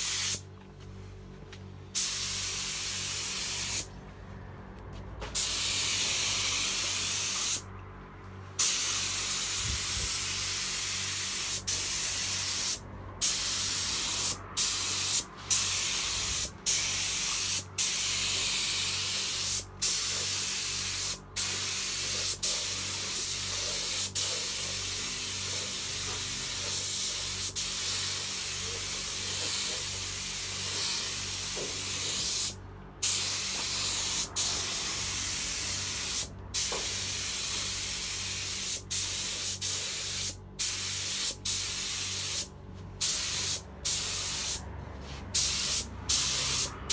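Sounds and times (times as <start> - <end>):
spray gun hissing: 0.0 - 0.4, 8.6 - 44.6, 45.4 - 46.7
low steady hum: 0.4 - 5.4, 31.7 - 36.6.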